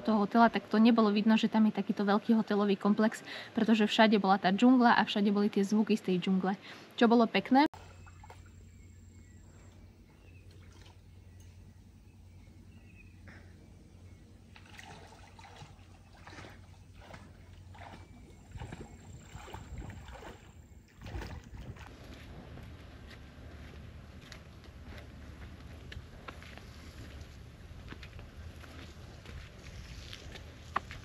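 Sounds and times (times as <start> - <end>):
low steady hum: 7.3 - 31.0
water sloshing and splashing: 7.8 - 8.6, 10.4 - 11.2, 14.5 - 22.2.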